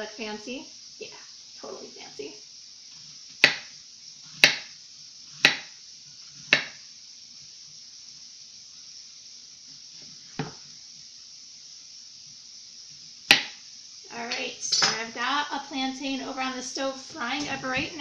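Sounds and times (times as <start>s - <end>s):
faint steady hiss: 0.0s - 18.0s
knife striking cutting board: 3.4s - 3.7s, 4.4s - 4.7s, 5.4s - 5.7s, 6.5s - 6.8s, 10.4s - 10.6s, 13.3s - 13.6s.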